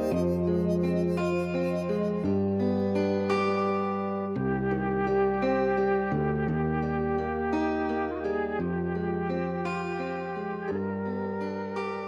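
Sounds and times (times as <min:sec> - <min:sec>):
harmonica chords: 0:00.0 - 0:02.7.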